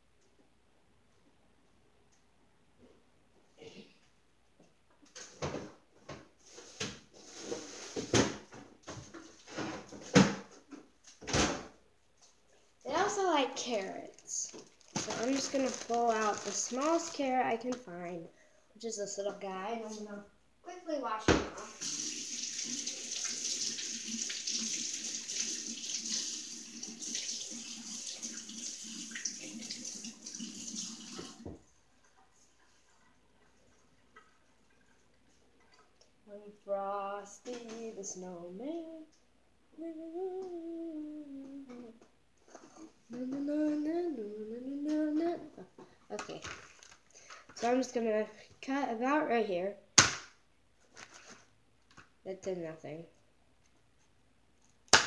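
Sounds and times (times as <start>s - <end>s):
rustling: 12.2s - 17.8s
kitchen tap running: 21.6s - 35.9s.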